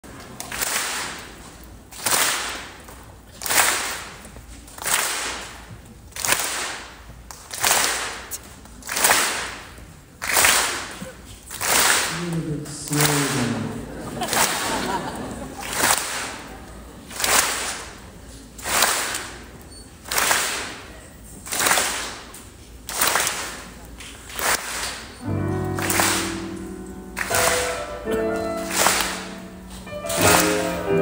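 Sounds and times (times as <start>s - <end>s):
loud ringing hits in a hall: 25.2s - 31.0s.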